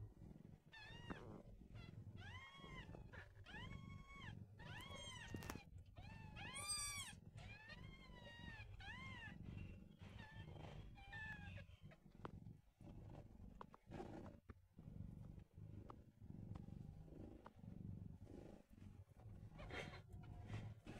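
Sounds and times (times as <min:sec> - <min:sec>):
kittens mewing: 0:03.5 - 0:09.4, 0:19.6 - 0:20.5.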